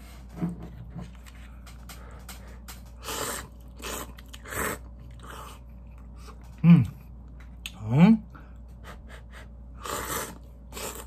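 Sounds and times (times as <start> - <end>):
noodles being slurped: 2.9 - 5.7, 9.8 - 11.0.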